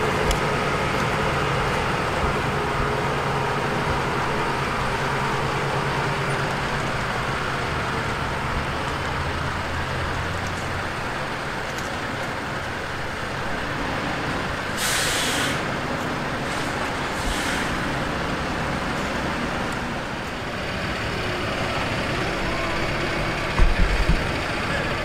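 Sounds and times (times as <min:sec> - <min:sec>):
heavy diesel engines running: 0:00.0 - 0:25.0
truck air brakes hissing: 0:14.6 - 0:18.8.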